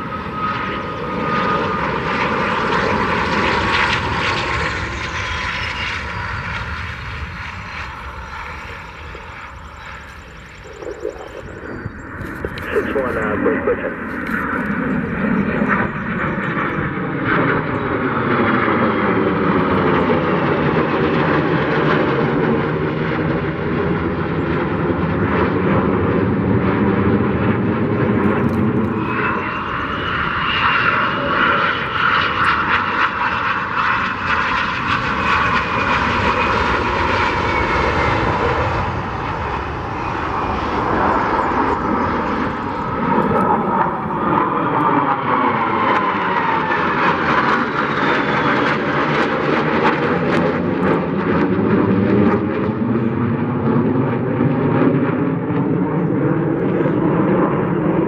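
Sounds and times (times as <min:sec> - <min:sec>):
fighter jets roaring overhead: 0:00.0 - 0:58.0
high whine falling in pitch: 0:05.9 - 0:16.1.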